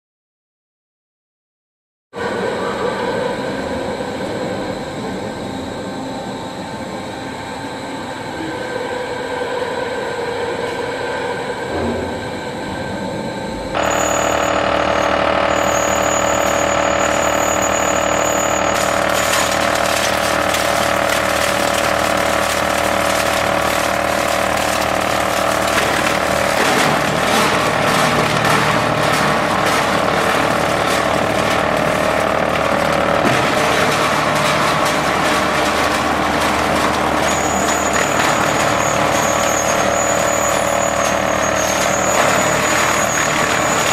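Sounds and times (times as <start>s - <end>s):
machinery humming: 2.2s - 43.9s
rattling clatter of conveyor: 13.8s - 43.9s.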